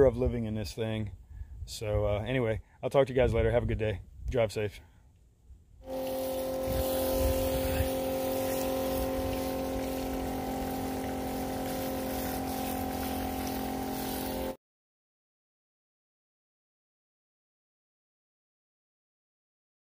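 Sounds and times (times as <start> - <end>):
hose nozzle spraying water: 5.8 - 14.6
water pump humming: 5.8 - 14.6.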